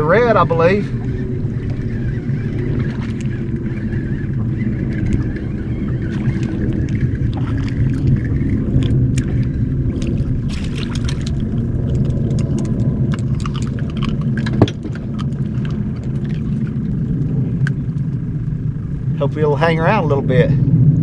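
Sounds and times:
reel and tackle clicking: 0:00.0 - 0:18.6
steady low rumble: 0:00.0 - 0:21.0.

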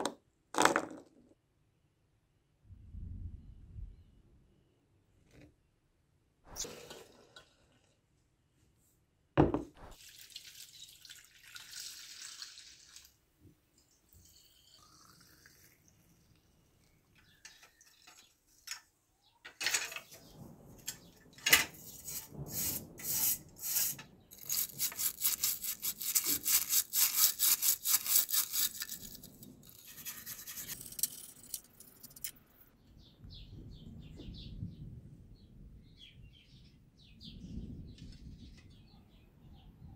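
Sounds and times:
brush scrubbing metal in water: 0:21.8 - 0:31.2.

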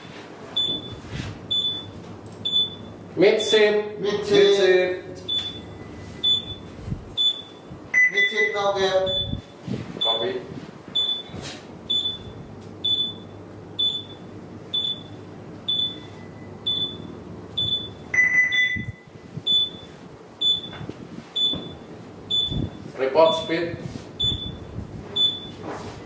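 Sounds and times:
console alarm beeping: 0:00.6 - 0:02.9, 0:05.3 - 0:10.3, 0:11.0 - 0:11.3, 0:11.9 - 0:20.8, 0:21.4 - 0:23.6, 0:24.2 - 0:25.6
longer lower beep: 0:02.5 - 0:02.9, 0:05.3 - 0:10.2, 0:11.9 - 0:20.8, 0:21.4 - 0:23.6, 0:24.2 - 0:25.6.

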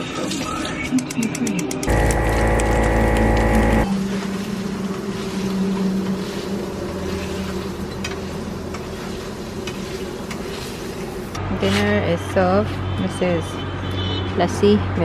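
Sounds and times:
low hum: 0:01.9 - 0:03.9.

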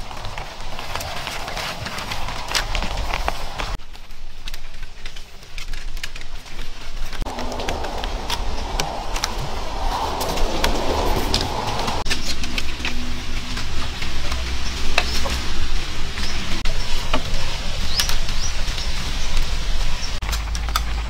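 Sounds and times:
steady low rumble: 0:00.0 - 0:03.8, 0:07.1 - 0:21.0
cord rustling and scraping on wood: 0:00.0 - 0:15.6.

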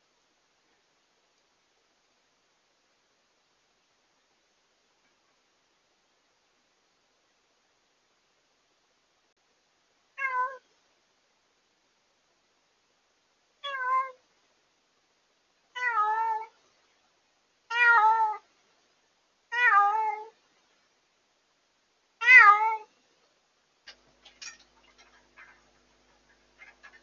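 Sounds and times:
cat meowing loudly: 0:10.2 - 0:10.6, 0:13.6 - 0:14.2, 0:22.2 - 0:22.9.

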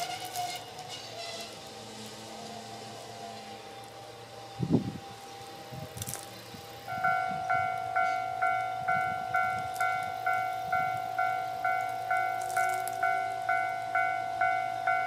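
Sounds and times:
level crossing warning bell: 0:06.9 - 0:15.0.

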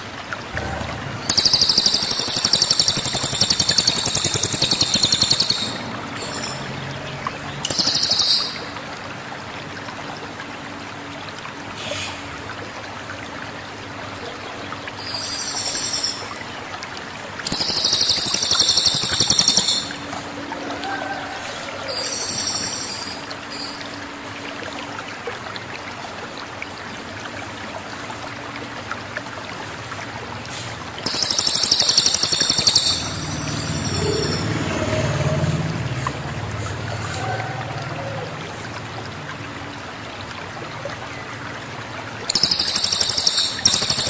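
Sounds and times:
bird singing high trills: 0:01.2 - 0:06.7, 0:17.5 - 0:20.0, 0:31.1 - 0:34.8, 0:42.3 - 0:44.0.

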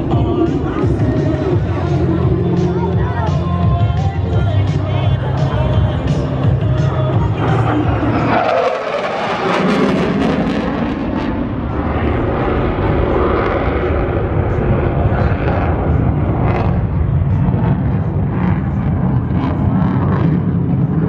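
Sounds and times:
jet engine roar overhead: 0:00.0 - 0:21.0.

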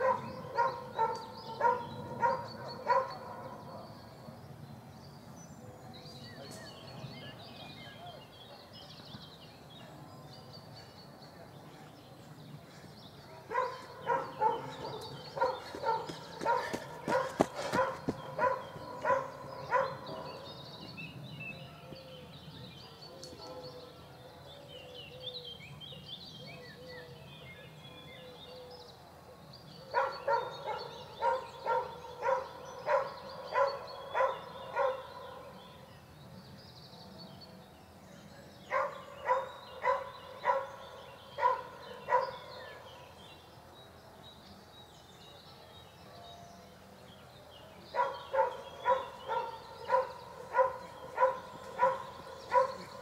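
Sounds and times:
dog barking: 0:00.0 - 0:03.6, 0:13.5 - 0:20.4, 0:29.9 - 0:35.4, 0:38.7 - 0:40.8, 0:41.4 - 0:42.5, 0:47.9 - 0:53.0
small birds chirping: 0:00.0 - 0:53.0.

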